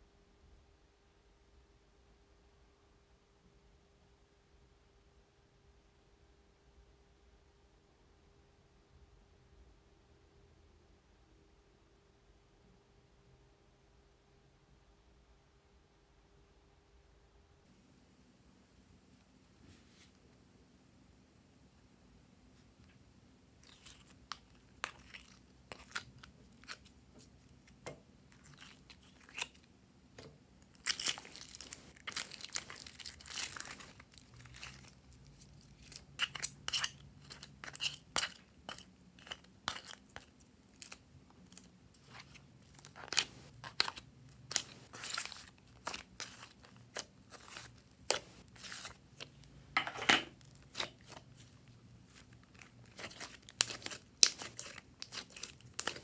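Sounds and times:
slime sticky clicks and crackles: 0:52.5 - 0:56.0.

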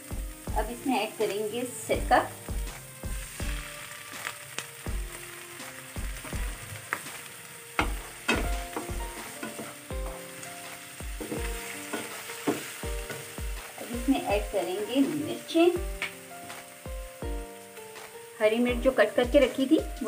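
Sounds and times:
oil sizzling: 0:00.0 - 0:20.0
wooden spatula scraping a pan: 0:07.8 - 0:16.6.

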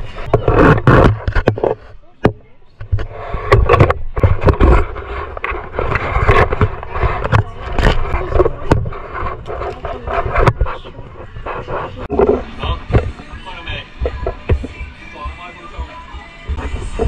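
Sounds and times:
items knocking and clattering: 0:00.2 - 0:13.2.

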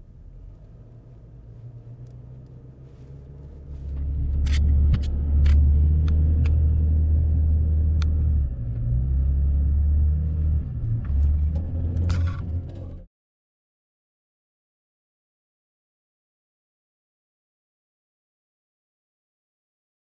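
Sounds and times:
truck engine and road rumble: 0:00.0 - 0:13.1.

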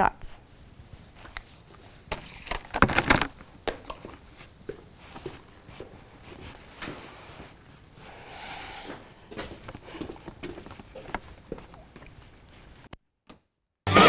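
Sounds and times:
footsteps on hard floor: 0:03.6 - 0:07.8, 0:08.8 - 0:12.9.

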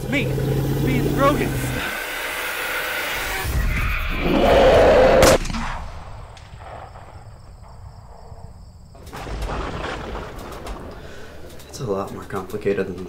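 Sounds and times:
gunshot crack: 0:05.2 - 0:07.4.

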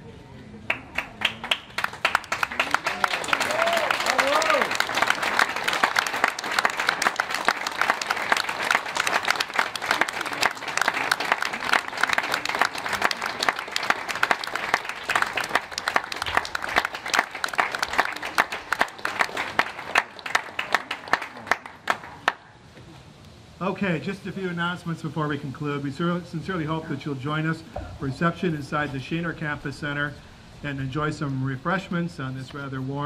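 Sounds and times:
audience applauding: 0:00.7 - 0:22.4.

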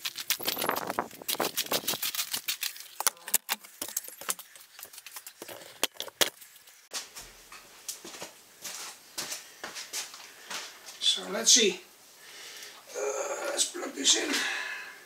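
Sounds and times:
footsteps on hard floor: 0:06.9 - 0:10.7.

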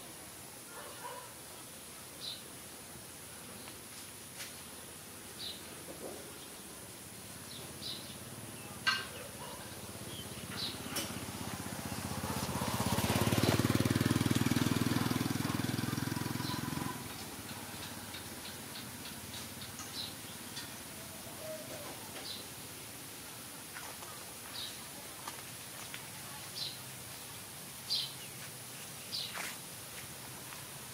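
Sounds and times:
small motorbike passing by: 0:09.6 - 0:20.2.

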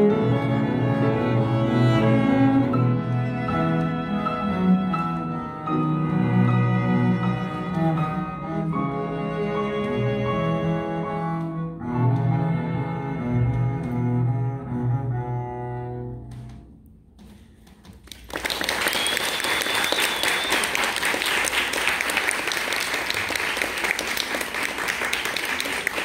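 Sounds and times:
audience applause: 0:17.9 - 0:26.0.

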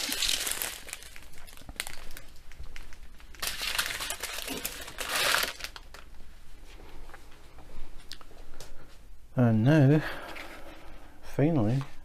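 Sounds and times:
plastic bags crinkling: 0:00.0 - 0:06.2.

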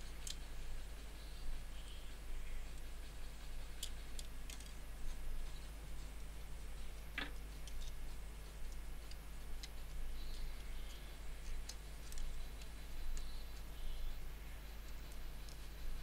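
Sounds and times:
steady low hum: 0:00.0 - 0:16.0
plastic parts clicking and tapping: 0:00.1 - 0:00.4, 0:03.8 - 0:04.8, 0:10.9 - 0:13.3.

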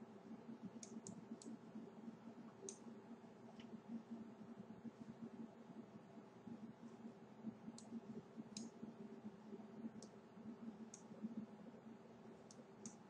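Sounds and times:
low steady hum: 0:00.0 - 0:13.0
faint computer mouse clicks: 0:00.8 - 0:01.6, 0:02.6 - 0:02.8, 0:07.7 - 0:08.8, 0:10.0 - 0:10.2, 0:10.9 - 0:11.1, 0:12.4 - 0:13.0.

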